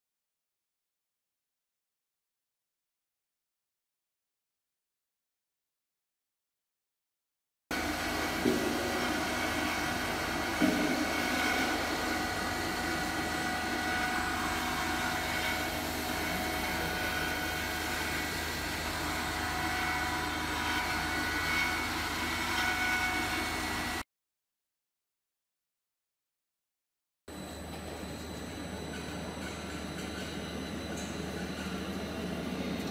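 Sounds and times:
machine humming with whining pump: 7.7 - 24.0, 27.3 - 32.9.

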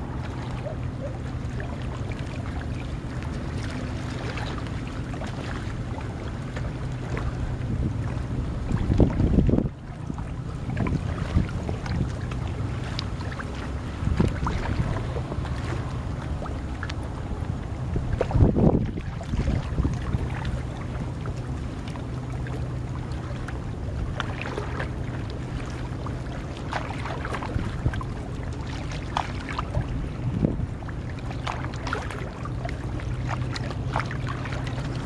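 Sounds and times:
steady low hum: 0.0 - 35.0
water sloshing and splashing: 0.0 - 35.0
wind on microphone: 7.0 - 12.7, 13.8 - 21.4, 26.8 - 28.8, 29.5 - 32.3.

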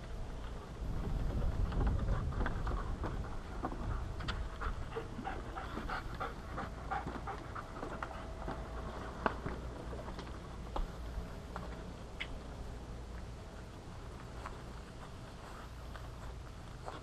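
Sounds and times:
footsteps: 0.4 - 12.5, 13.1 - 17.0
dog panting rapidly: 2.0 - 9.0.

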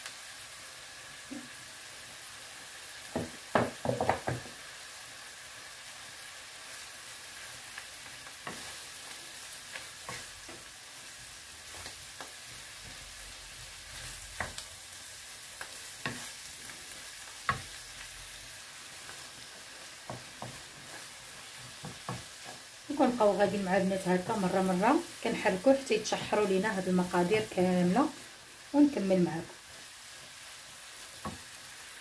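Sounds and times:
vegetables sizzling in a pan: 0.0 - 32.0
wooden spatula scraping a pan: 8.4 - 9.0, 9.7 - 14.6, 15.6 - 17.8, 19.0 - 28.0.

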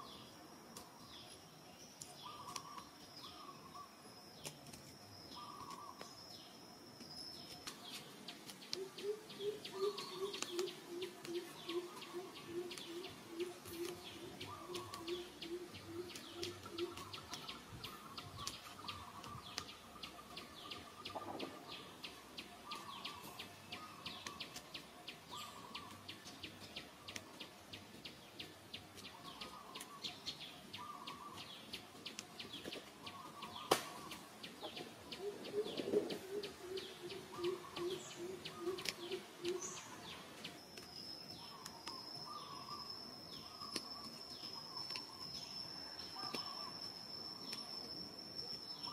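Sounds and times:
birds chirping and calling: 0.0 - 48.9
low hooting bird notes: 35.1 - 40.3.

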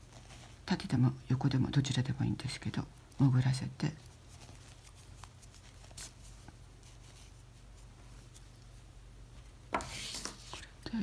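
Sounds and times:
yarn rustling through stitches: 0.0 - 10.6.

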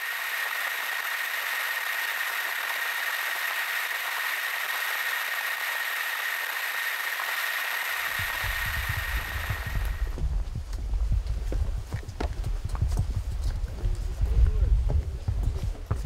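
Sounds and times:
high-pitched motor whine: 0.0 - 10.9
low thumping: 8.2 - 16.0.

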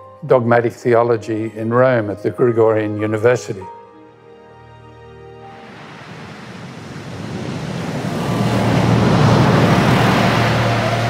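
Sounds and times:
rushing water: 5.4 - 11.0.

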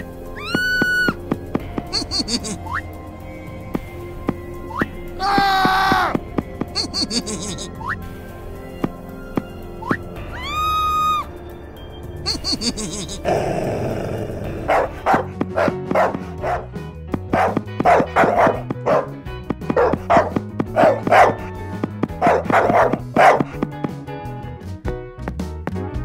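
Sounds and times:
background music: 0.0 - 26.0
dog barking: 14.6 - 16.7, 17.3 - 21.5, 22.2 - 23.6.

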